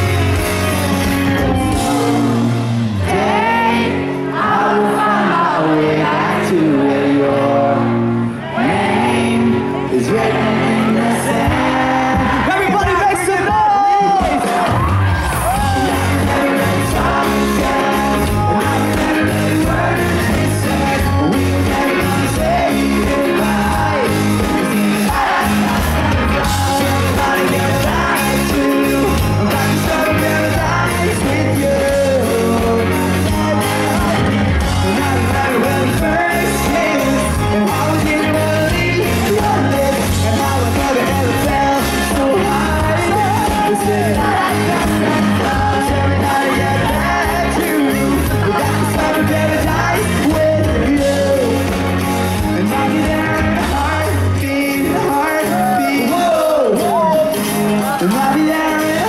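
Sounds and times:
drums: 0:00.0 - 0:04.7, 0:09.1 - 0:59.0
bass guitar: 0:00.0 - 0:59.0
electric guitars: 0:00.0 - 0:59.0
lead vocalist singing: 0:00.0 - 0:59.0.

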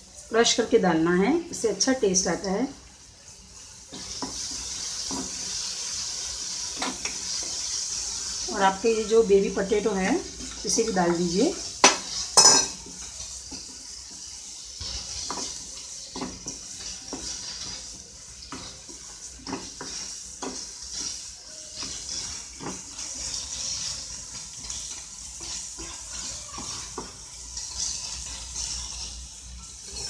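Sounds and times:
sizzling in oil: 0:00.0 - 0:30.0
wooden spatula scraping pan: 0:06.5 - 0:30.0.

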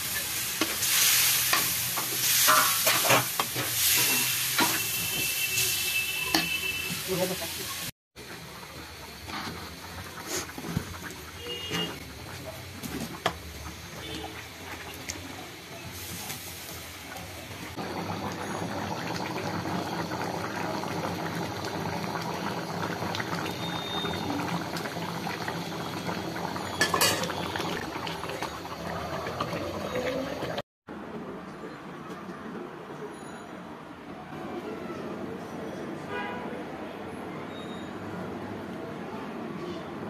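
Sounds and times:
curry simmering and bubbling: 0:08.2 - 0:30.6.

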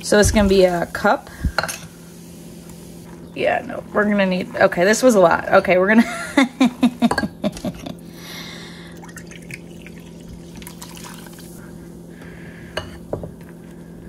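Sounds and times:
soda pouring into cup: 0:08.9 - 0:11.6.

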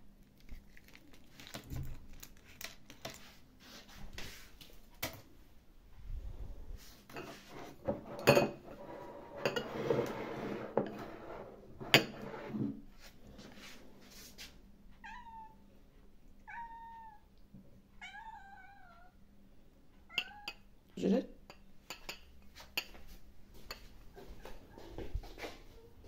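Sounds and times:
china bowls clinking and scraping: 0:07.1 - 0:12.7
cat meowing: 0:15.0 - 0:15.6, 0:16.4 - 0:17.3, 0:18.0 - 0:19.2.

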